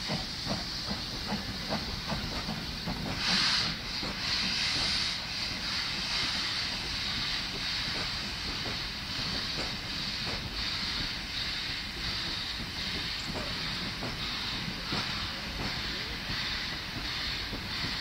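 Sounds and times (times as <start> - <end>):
steam locomotive hissing: 0.0 - 18.0.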